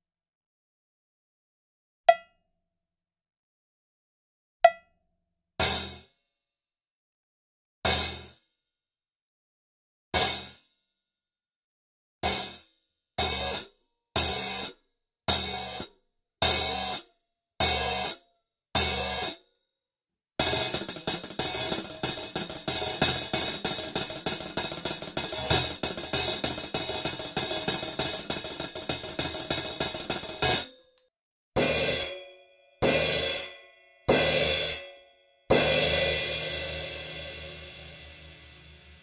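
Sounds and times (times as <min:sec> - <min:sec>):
hi-hat cymbal hits: 0:20.4 - 0:30.7.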